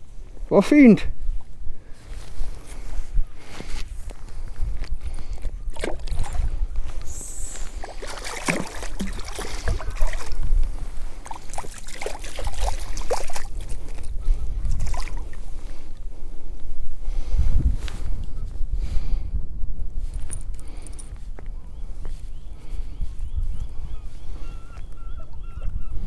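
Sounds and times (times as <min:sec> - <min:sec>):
wind rumble on microphone: 0:01.1 - 0:26.0
water splashing: 0:05.7 - 0:06.6, 0:07.5 - 0:14.0, 0:14.7 - 0:15.4.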